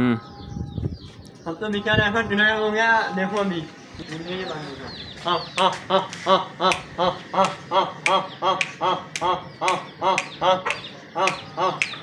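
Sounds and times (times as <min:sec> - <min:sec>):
person making clicking chicken calls: 0:05.2 - 0:12.0.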